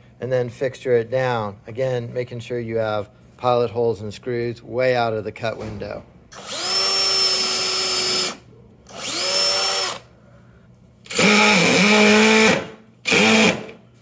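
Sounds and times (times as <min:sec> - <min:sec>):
cordless drill motor whine: 0:06.4 - 0:10.0, 0:11.1 - 0:13.7.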